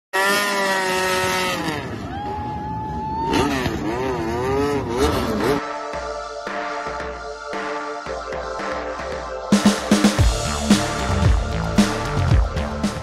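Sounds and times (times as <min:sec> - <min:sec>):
motorcycle engine revving: 0:00.1 - 0:02.0, 0:03.2 - 0:05.7
electronic music: 0:04.8 - 0:13.0.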